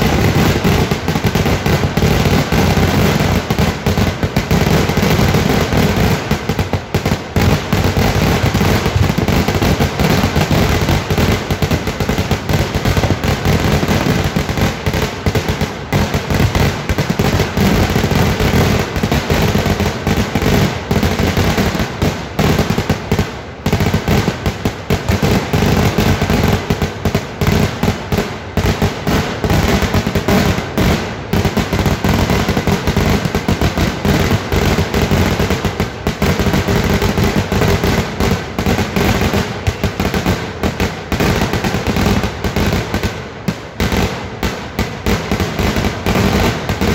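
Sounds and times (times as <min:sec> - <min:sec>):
fireworks bangs and crackling: 0:00.0 - 0:46.9.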